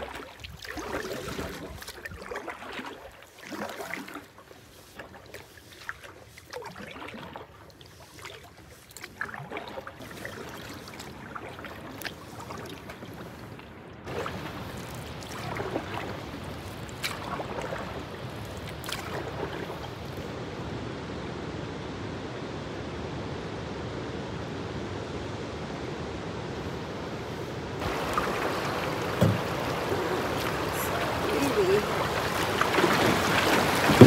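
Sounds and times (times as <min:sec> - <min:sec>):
canoe paddle strokes in water: 0:00.0 - 0:20.9, 0:26.5 - 0:34.0
rushing water current: 0:00.0 - 0:34.0
single knock: 0:29.2 - 0:29.5.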